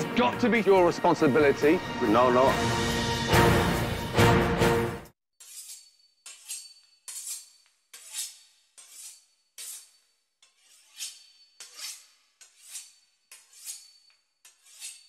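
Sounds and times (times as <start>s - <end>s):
music: 0.0s - 5.2s
knife sawing through pastry crust: 5.4s - 15.0s.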